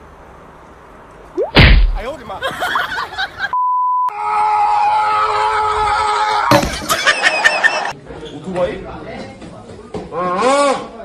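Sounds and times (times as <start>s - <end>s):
loud thump: 1.4s - 2.1s
censor bleep: 3.6s - 4.1s.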